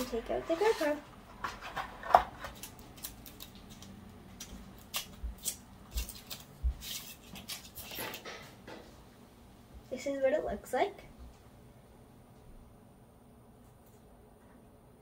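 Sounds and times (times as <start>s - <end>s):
plastic packaging clicks and rustles: 1.3s - 8.5s.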